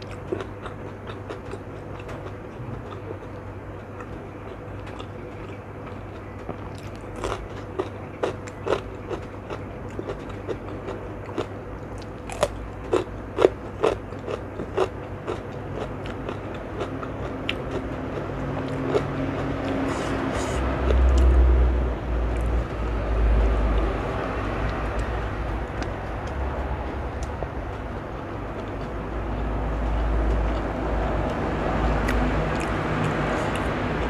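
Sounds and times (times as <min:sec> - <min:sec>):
low background rumble: 0:00.0 - 0:34.0
cucumber being bitten and chewed: 0:32.0 - 0:33.7.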